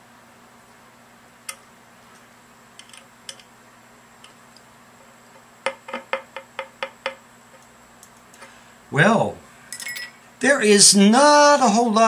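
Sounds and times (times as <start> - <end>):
small metal clicks and ticks: 2.8 - 3.5.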